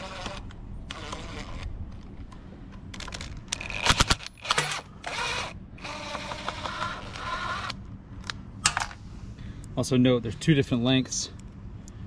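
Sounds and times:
cordless driver whirring: 0.0s - 2.0s, 3.0s - 7.8s.

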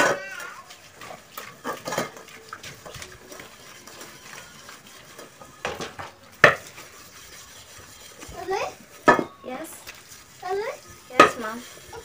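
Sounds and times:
steel wool scrubbing pot: 0.0s - 12.0s
knock on pot: 11.2s - 11.4s.

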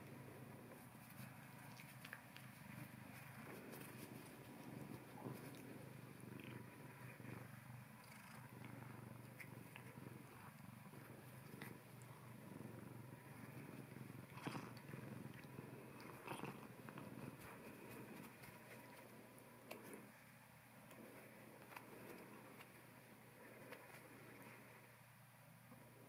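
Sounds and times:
cat purring: 0.0s - 26.0s.

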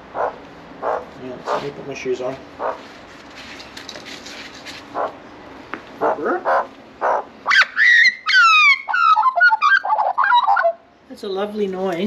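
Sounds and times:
magpie carolling: 6.0s - 10.8s.

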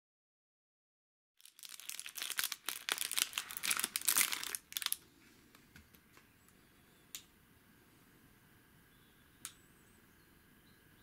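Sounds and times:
plastic wrapper crinkling: 1.4s - 5.1s.

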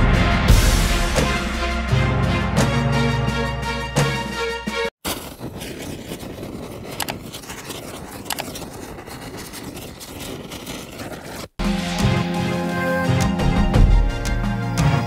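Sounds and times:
background music: 0.0s - 4.9s, 11.6s - 15.0s.

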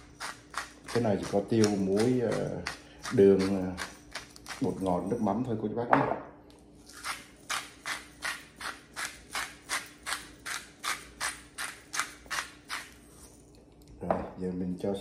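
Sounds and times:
pepper mill grinding: 0.0s - 5.3s, 6.8s - 13.4s.

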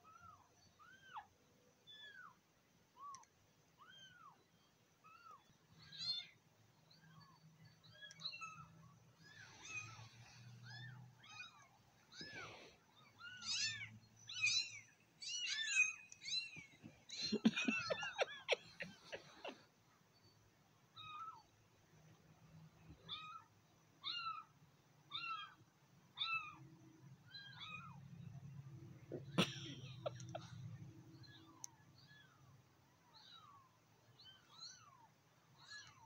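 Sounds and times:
kittens mewing: 7.9s - 19.6s, 27.3s - 32.4s.

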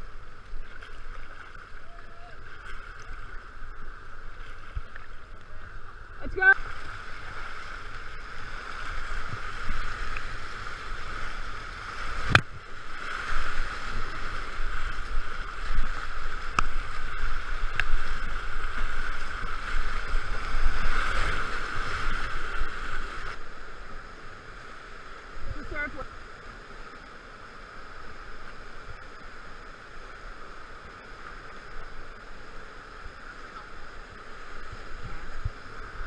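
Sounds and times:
paddle strokes splashing: 0.0s - 23.4s
whitewater rapids rushing: 5.5s - 26.3s.

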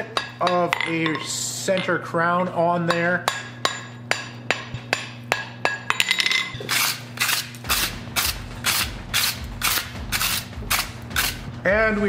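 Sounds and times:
wire brush scrubbing steel: 6.6s - 11.5s.

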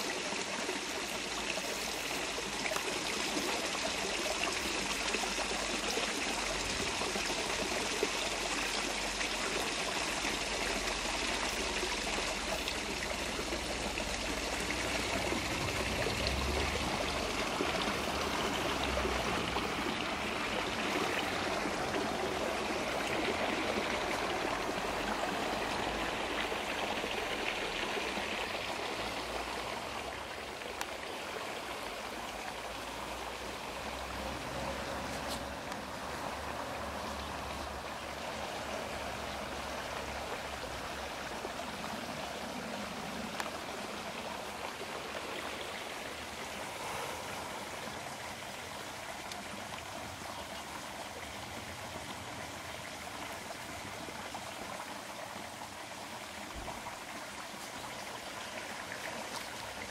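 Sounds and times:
running water rushing: 0.0s - 59.9s.

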